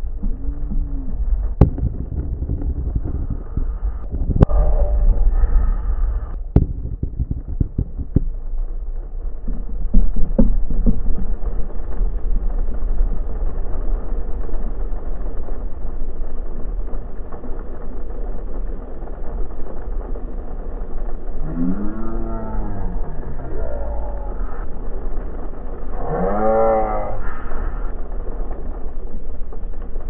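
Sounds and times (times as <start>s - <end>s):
rain and spray against vehicle: 0.0s - 30.0s
road rumble: 0.0s - 30.0s
water knocks and slaps: 9.3s - 11.7s.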